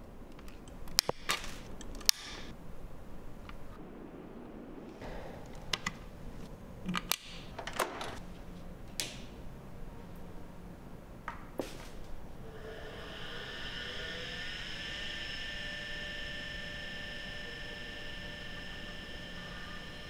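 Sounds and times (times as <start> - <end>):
sharp clicks and snaps: 0.3 - 2.6, 5.4 - 8.2, 8.9 - 9.3.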